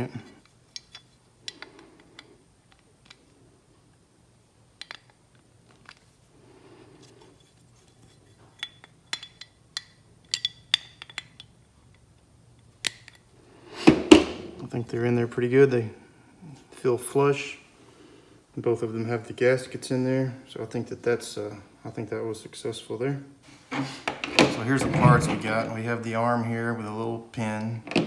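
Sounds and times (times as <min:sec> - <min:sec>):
metallic clicks and clinks: 0:08.0 - 0:12.1.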